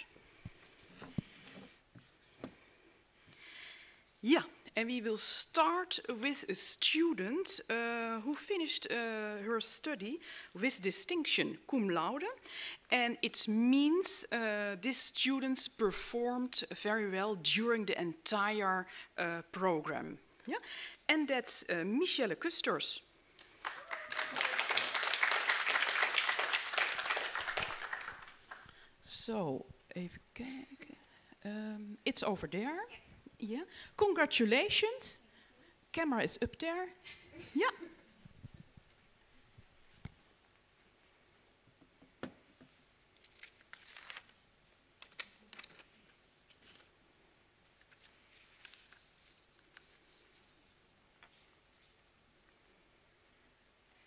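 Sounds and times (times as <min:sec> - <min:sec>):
small group clapping: 0:23.4 - 0:28.8
faint clicks and rustles: 0:43.1 - 0:47.0, 0:47.6 - 0:53.0.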